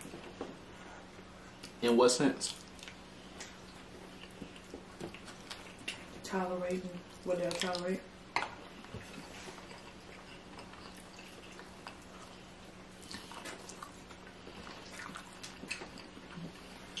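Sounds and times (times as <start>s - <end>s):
steady low hum: 0.0s - 17.0s
person chewing with mouth clicks: 2.4s - 6.2s, 8.5s - 17.0s.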